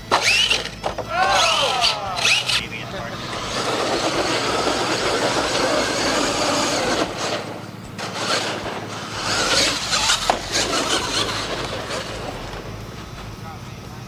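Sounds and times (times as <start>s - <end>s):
toy truck motor running: 0.0s - 14.0s.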